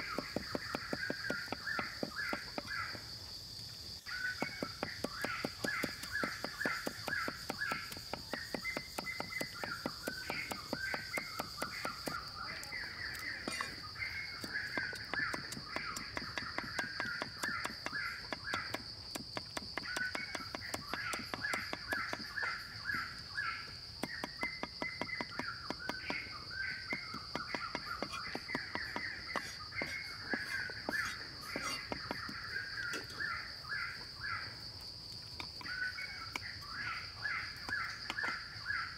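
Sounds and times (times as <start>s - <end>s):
cleaver chopping on wooden block: 0.0s - 2.9s, 4.2s - 12.6s, 14.4s - 22.5s, 24.0s - 33.1s
birds calling: 0.0s - 3.2s, 4.0s - 34.7s, 35.4s - 38.9s.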